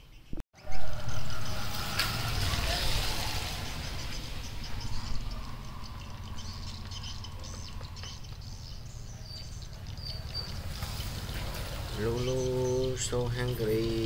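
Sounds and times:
low rumble: 0.6 - 9.6.

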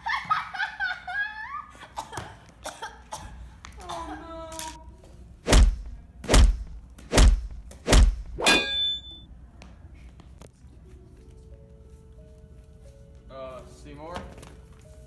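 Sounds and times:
heavy chopping blows: 5.4 - 8.4
metallic ring: 8.4 - 9.3.

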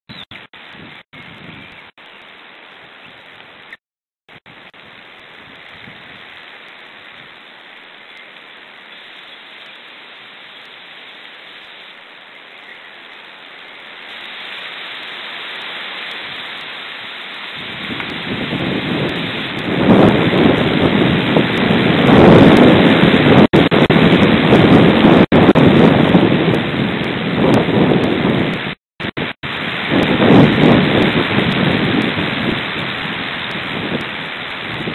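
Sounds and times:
wind blowing on microphone: 0.1 - 1.9, 4.5 - 6.4, 15.5 - 34.9.

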